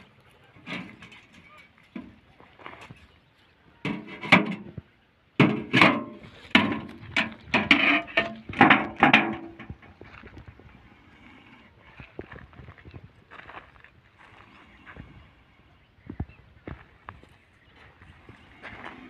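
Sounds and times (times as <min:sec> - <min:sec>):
metal clanks and rattles: 0:00.5 - 0:03.2, 0:03.8 - 0:04.8, 0:05.4 - 0:10.2.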